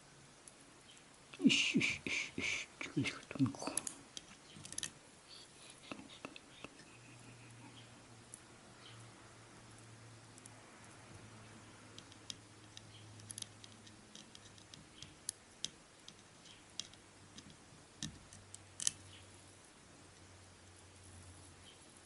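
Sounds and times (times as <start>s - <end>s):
low steady hum: 0.0s - 22.0s
small clicks and taps of tool: 11.9s - 19.0s.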